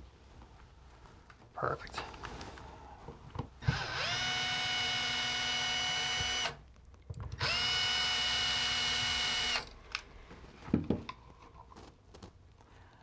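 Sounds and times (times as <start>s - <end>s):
cordless screw gun whining: 3.6s - 6.6s, 7.3s - 9.8s.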